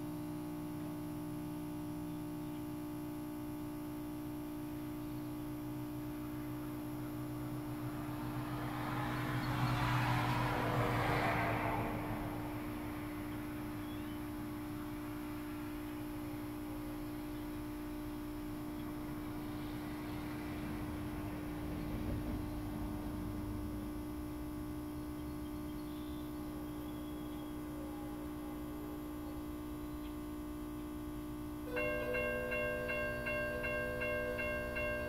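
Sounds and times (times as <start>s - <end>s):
electrical hum with steady tone: 0.0s - 35.0s
crossing warning bell ringing: 6.5s - 11.8s, 31.5s - 35.0s.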